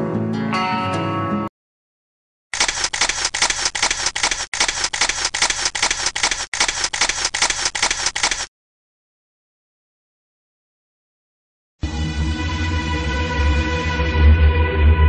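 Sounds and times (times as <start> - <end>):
camera shutter burst clicks: 2.6 - 8.5.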